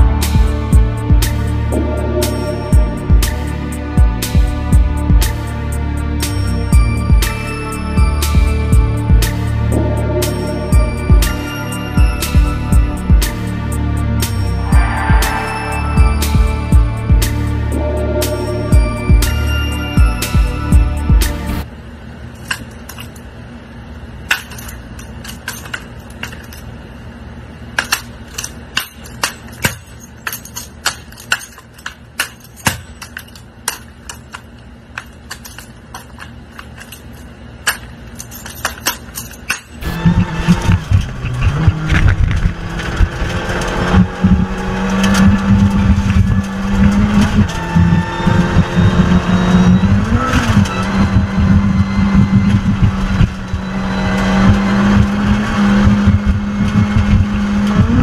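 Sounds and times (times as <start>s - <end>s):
rally car engine at high revs: 39.8s - 58.0s.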